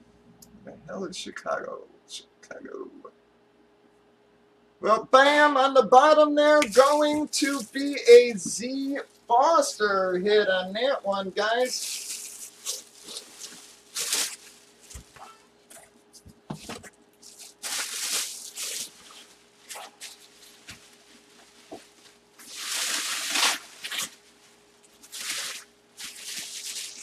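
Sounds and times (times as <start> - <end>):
plastic bag rustling: 6.6 - 9.3, 10.8 - 27.0.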